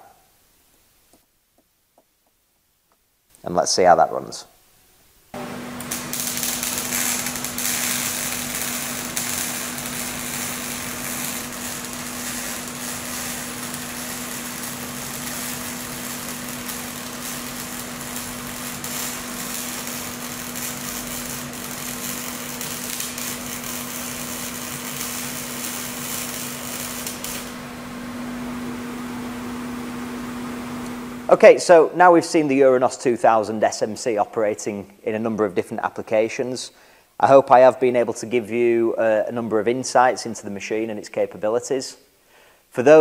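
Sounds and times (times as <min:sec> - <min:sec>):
welding arc crackling: 0:05.3 - 0:31.3.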